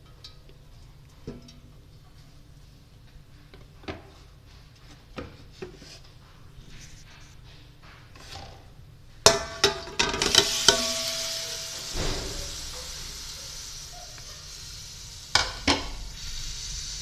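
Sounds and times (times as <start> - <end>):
clanks on a steel pot: 9.3 - 13.0, 15.4 - 16.0
chicken sizzling in oil: 10.2 - 17.0.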